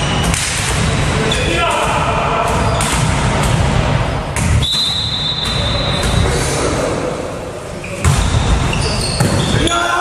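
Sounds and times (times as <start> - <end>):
referee's whistle blast: 4.6 - 6.2.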